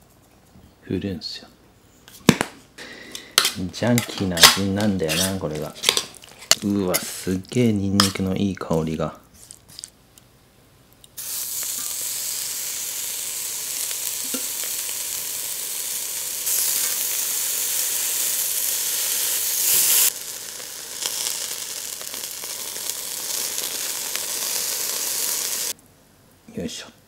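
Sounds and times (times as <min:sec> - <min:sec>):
meat sizzling on a grill: 0:11.2 - 0:25.8.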